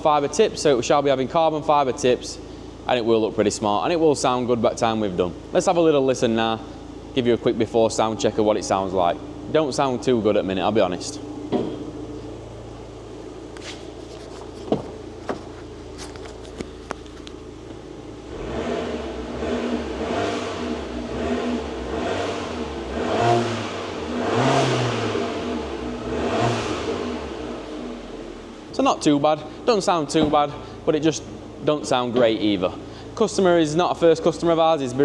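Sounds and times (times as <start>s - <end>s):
car engine idling: 0.0s - 35.0s
engine revving: 18.2s - 28.4s.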